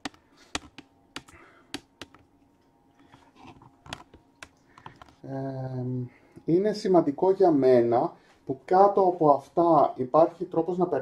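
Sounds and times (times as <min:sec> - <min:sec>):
faint steady hum: 0:00.0 - 0:11.0
man speaking: 0:05.2 - 0:11.0.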